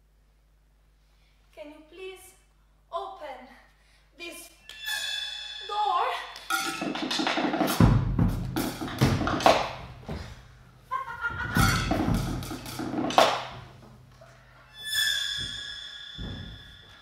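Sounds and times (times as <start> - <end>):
heavy thuds: 7.8 - 10.6.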